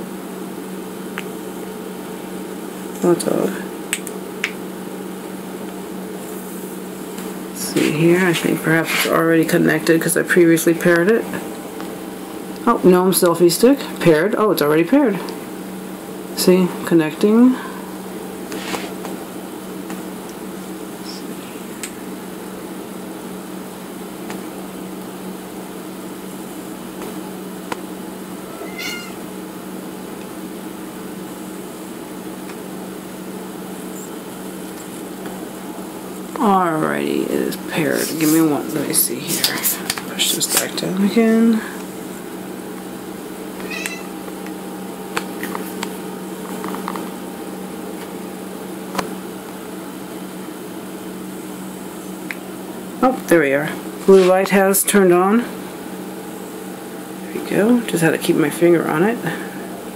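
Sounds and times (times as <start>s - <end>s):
low room hum: 0.0s - 59.9s
brief high-pitched call: 28.5s - 29.2s, 43.7s - 44.1s.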